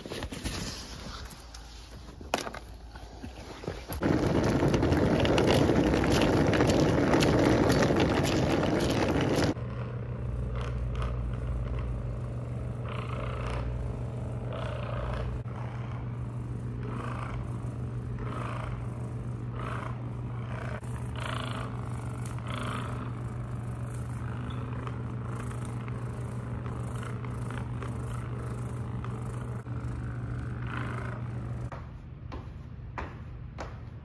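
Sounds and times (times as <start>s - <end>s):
massage gun buzzing hum: 3.9s - 31.7s
massage gun rasp on muscle: 14.6s - 31.7s.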